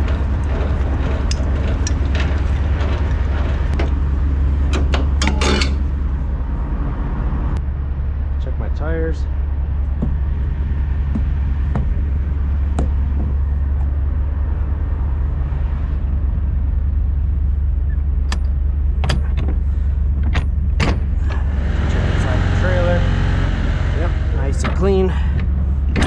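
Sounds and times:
sharp clicks and knocks: 0:00.0 - 0:05.9, 0:11.0 - 0:13.9, 0:18.2 - 0:19.6
diesel truck idling: 0:00.0 - 0:26.0.

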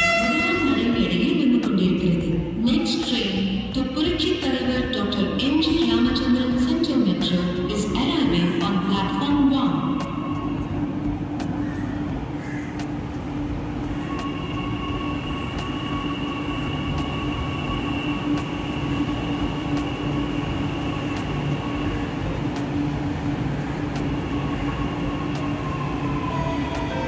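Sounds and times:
electric train whine: 0:07.6 - 0:27.0.

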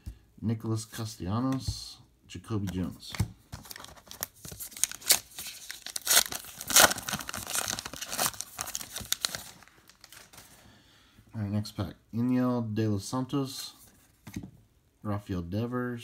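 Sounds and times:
foil wrapper tearing: 0:03.8 - 0:10.3.

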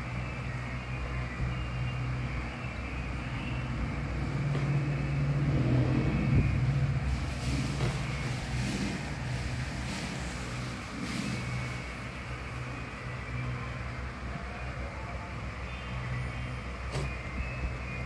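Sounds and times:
hand rubbing fur: 0:07.1 - 0:11.9.

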